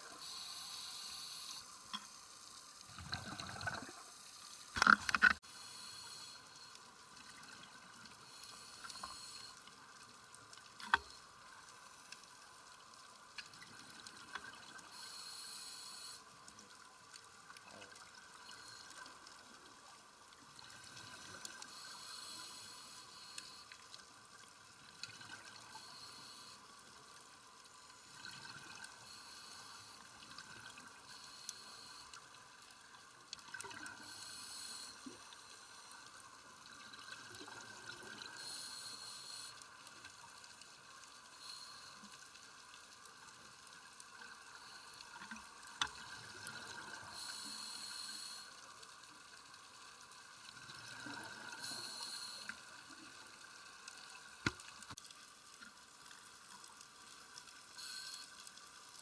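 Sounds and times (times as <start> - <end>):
underwater hiss: 0.0 - 10.0, 13.6 - 16.4, 18.4 - 19.6, 20.6 - 24.0, 24.8 - 32.6, 33.5 - 42.7, 44.2 - 55.0, 55.7 - 59.0
scuba regulator bubbles: 2.9 - 4.2.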